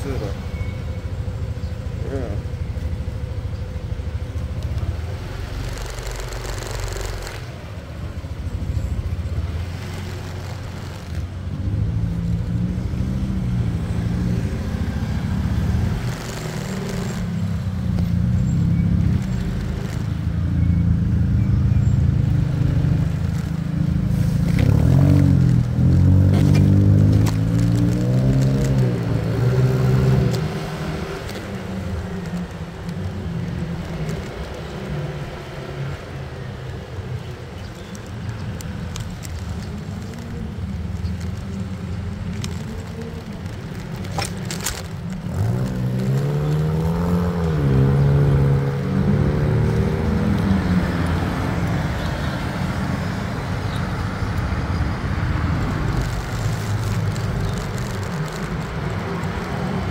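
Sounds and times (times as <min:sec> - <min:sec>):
road and wind rumble: 0:00.0 - 0:59.9
motorcycle engine running: 0:01.1 - 0:33.4.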